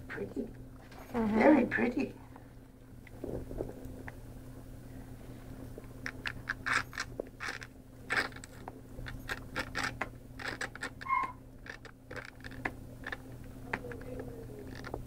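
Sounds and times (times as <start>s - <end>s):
steady low hum: 0.0s - 15.0s
puppy squeak: 11.0s - 11.4s.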